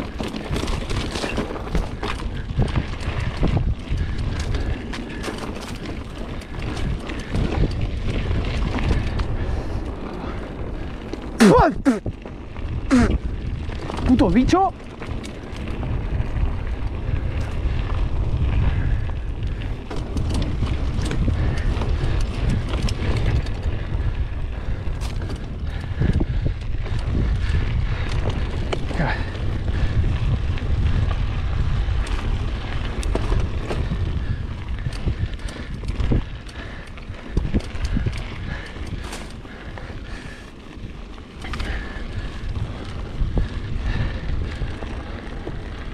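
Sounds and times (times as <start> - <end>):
bike rattling over rough ground: 0.0 - 45.9
wind buffeting microphone: 0.0 - 45.9.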